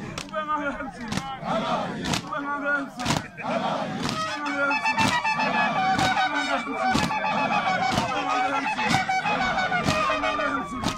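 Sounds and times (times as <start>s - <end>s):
group of voices chanting: 1.0s - 10.9s
sharp beat: 4.0s - 10.2s.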